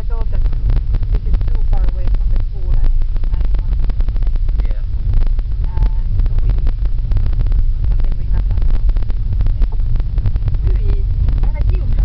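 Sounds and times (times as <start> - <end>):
car road noise rumbling: 0.0 - 12.0.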